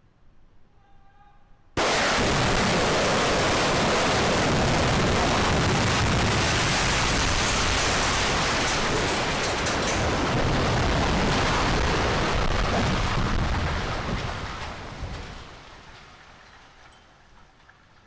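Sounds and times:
explosive charges going off: 1.8s - 14.9s
collapse and falling debris: 1.8s - 17.6s.

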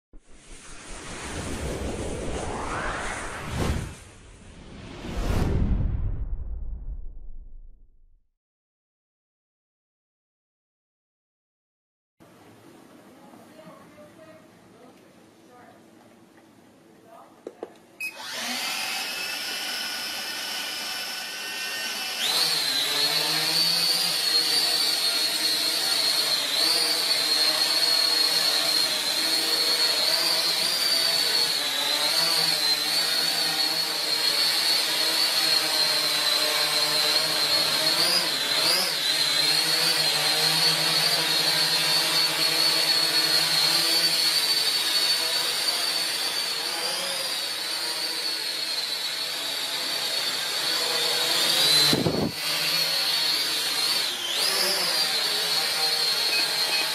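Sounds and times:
quadcopter propellers whining: 18.0s - 56.9s.

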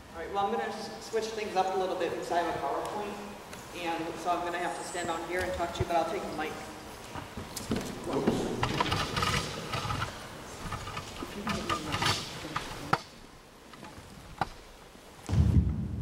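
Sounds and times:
microphone handling clicks and rustles: 7.0s - 15.8s
loud low thump: 15.3s - 16.0s.

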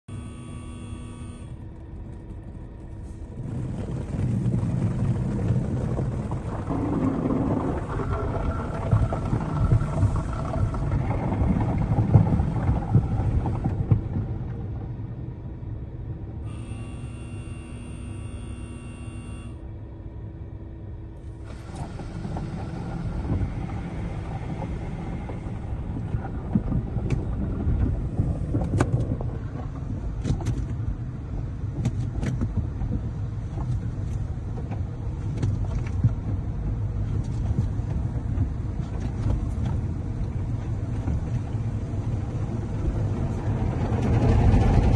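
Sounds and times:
steady tone: 0.1s - 2.0s, 14.9s - 28.3s
car wash brushes and spray: 21.4s - 26.2s.

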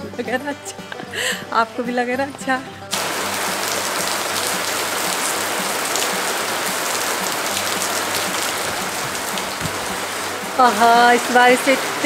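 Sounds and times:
heavy rain on tiles: 2.9s - 12.0s.

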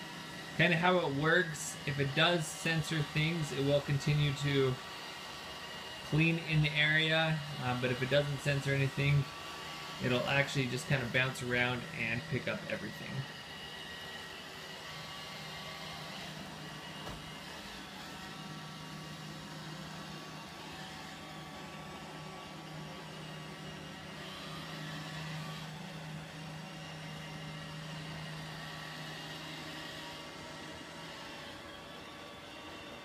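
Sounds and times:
robot vacuum running over carpet: 0.0s - 33.0s.

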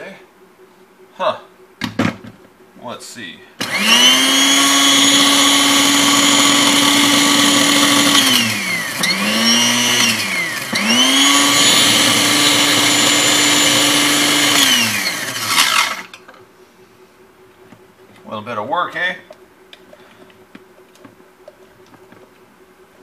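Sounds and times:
blender motor running: 3.6s - 16.2s.

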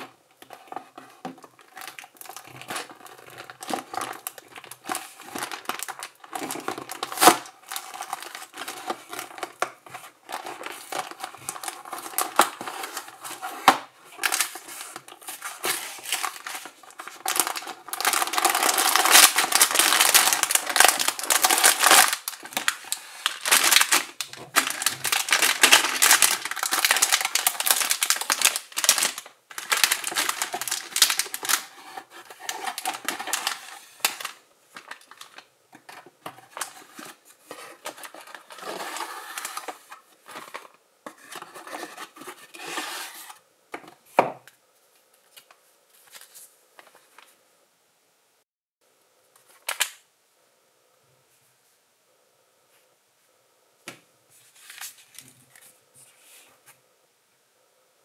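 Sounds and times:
plastic and cardboard crinkling: 0.0s - 44.4s.

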